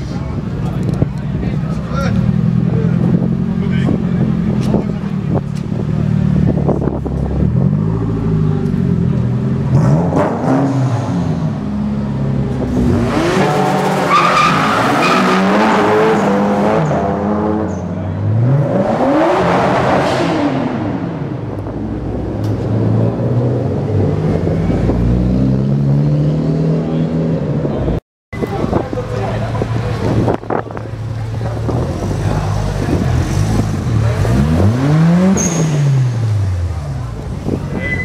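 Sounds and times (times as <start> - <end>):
cars accelerating in a tunnel: 1.2 - 38.0
low engine rumble: 26.8 - 34.5.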